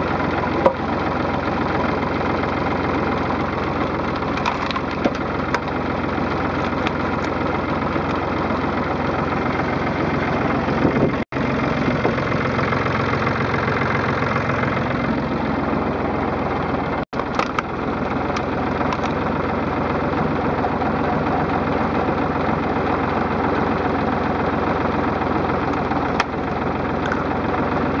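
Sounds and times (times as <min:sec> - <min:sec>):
log splitter boring into logs: 0:00.0 - 0:28.0
tractor engine running: 0:00.0 - 0:28.0
sharp wood cracks: 0:02.9 - 0:08.6, 0:17.2 - 0:19.3.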